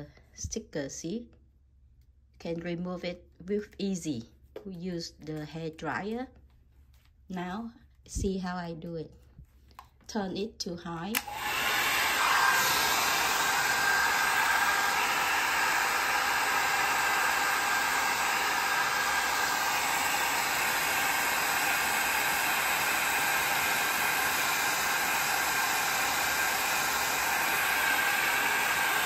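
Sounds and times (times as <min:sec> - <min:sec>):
hair dryer blowing air: 0:11.1 - 0:29.0.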